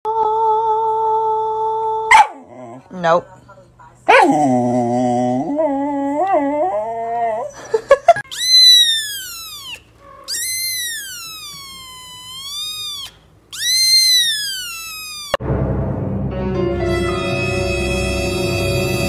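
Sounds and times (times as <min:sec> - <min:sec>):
kitten meowing: 0:08.3 - 0:15.4.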